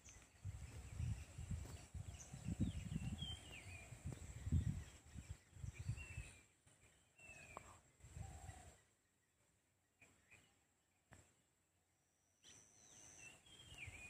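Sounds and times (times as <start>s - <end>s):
wind rumbling on microphone: 0.0s - 6.6s, 7.2s - 8.8s
birds chirping and whistling: 0.0s - 9.0s, 12.2s - 14.0s.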